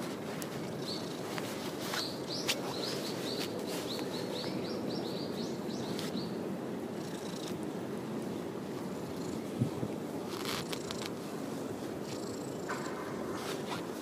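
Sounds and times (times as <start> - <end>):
small bird chirping: 0.8 - 1.2
cat purring: 10.3 - 11.2.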